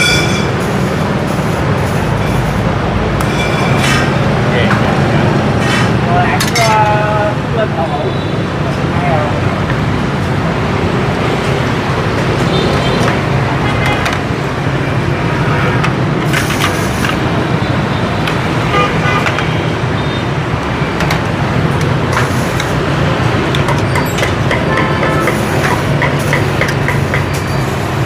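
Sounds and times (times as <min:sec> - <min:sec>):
motorbikes and cars passing: 0:00.0 - 0:28.0
street traffic hum: 0:00.0 - 0:28.0
dishes and utensils clinking: 0:05.6 - 0:06.9, 0:23.6 - 0:27.6.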